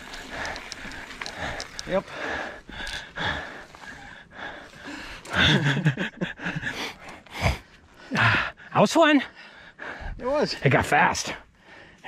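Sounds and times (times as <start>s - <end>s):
person breathing hard: 0.0s - 8.7s, 9.3s - 10.2s.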